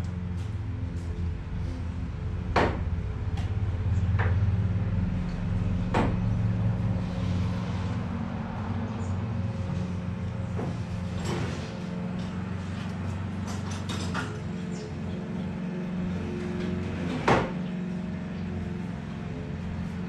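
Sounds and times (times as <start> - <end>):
low machine hum: 0.0 - 20.0.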